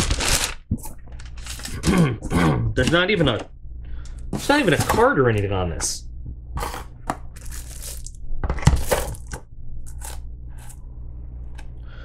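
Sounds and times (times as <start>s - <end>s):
packaging crinkling and tearing: 0.0s - 2.0s, 7.4s - 10.2s.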